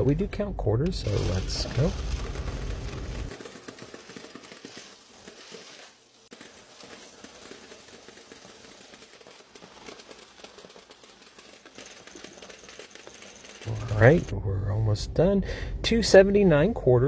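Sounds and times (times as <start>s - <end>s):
coin counter clicking: 1.1s - 14.3s.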